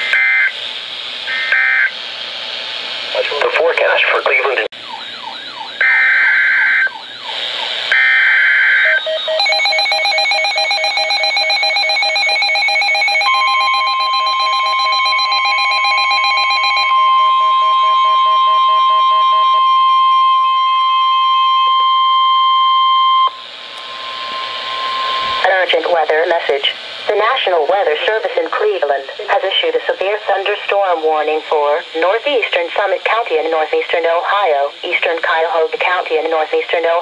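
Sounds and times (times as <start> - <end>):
pulsing alarm tones: 0.0 - 0.6, 1.3 - 2.0, 4.8 - 26.6
steady warning alert tone: 7.9 - 26.7.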